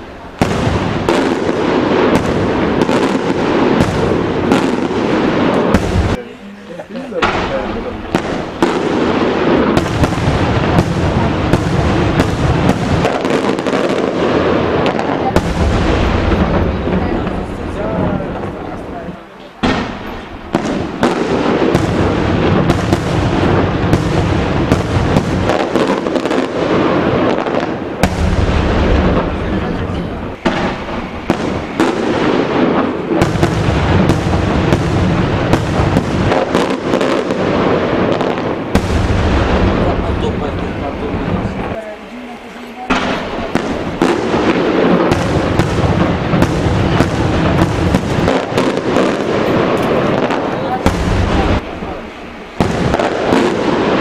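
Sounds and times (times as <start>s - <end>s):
fireworks rumble and crackle: 0.0s - 54.0s
fireworks shells bursting: 18.3s - 41.8s, 42.5s - 54.0s.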